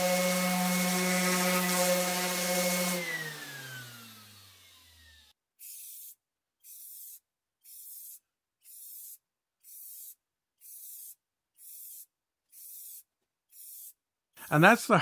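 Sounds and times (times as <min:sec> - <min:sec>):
aerosol spray can hissing: 0:05.6 - 0:14.0.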